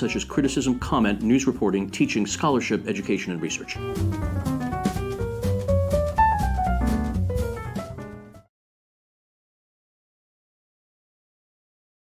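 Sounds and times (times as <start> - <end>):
jazz chord held: 3.4 - 8.5.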